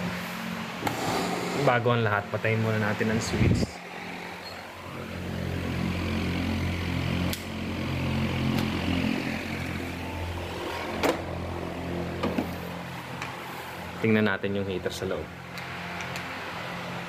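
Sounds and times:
electric motor humming: 0:02.9 - 0:14.0.

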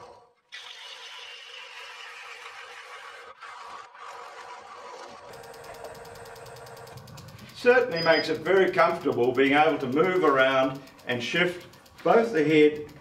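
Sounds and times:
lathe gouge shaving wood: 0:01.1 - 0:06.0
rapid even ticking: 0:05.3 - 0:13.0.

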